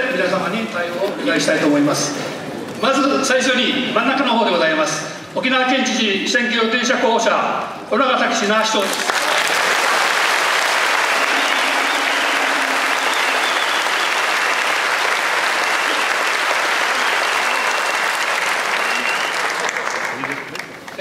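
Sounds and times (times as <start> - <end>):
audience applauding: 8.8 - 21.0.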